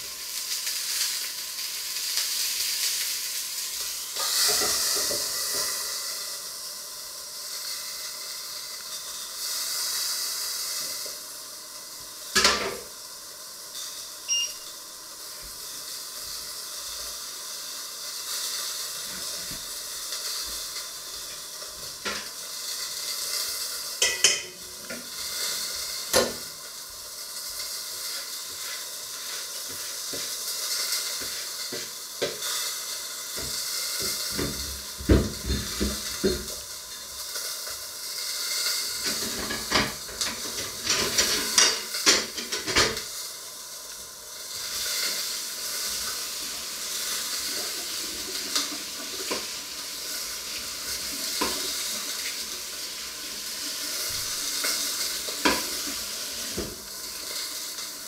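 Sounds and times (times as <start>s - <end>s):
food sizzling in a pan: 0.0s - 58.0s
pots and utensils clattering: 4.2s - 5.8s, 12.3s - 12.9s, 21.2s - 22.4s, 24.0s - 26.5s, 33.4s - 36.7s, 38.6s - 43.1s, 54.1s - 56.8s.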